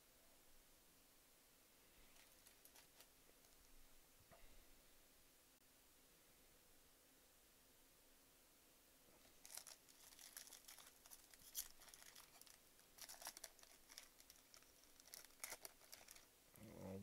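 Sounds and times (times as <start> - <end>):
foil wrapper crackling: 9.2 - 16.3.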